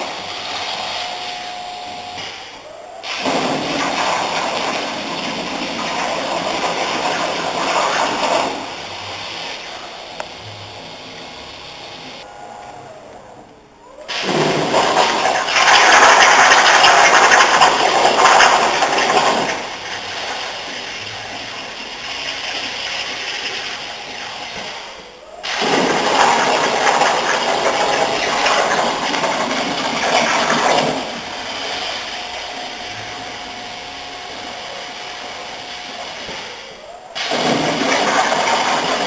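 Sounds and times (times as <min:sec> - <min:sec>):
plasma cutter torch hissing: 0:30.9 - 0:39.0.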